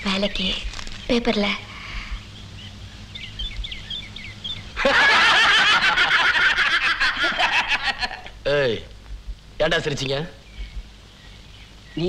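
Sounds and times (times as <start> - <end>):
men laughing loudly: 4.8 - 8.4.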